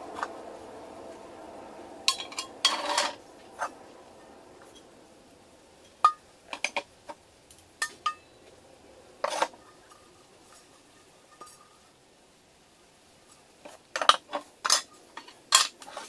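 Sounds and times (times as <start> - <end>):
metal frying pans clanking: 2.1 - 3.7, 13.7 - 16.0.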